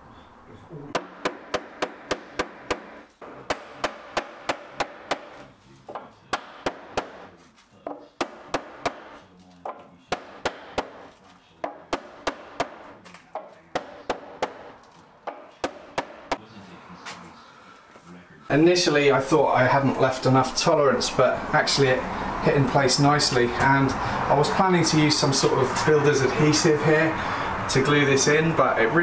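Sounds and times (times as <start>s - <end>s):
hammer knocking on wood: 0.9s - 16.4s.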